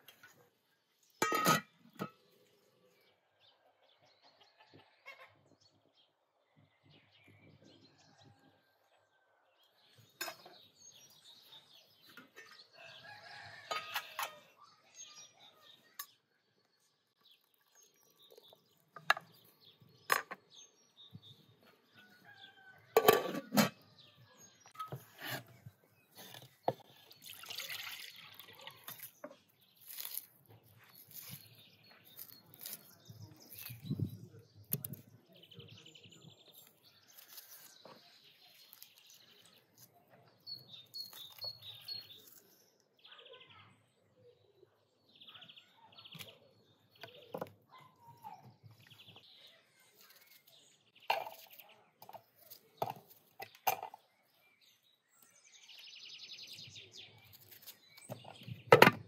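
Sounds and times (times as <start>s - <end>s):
metal skimmer clinking on pot: 1.2s - 2.2s.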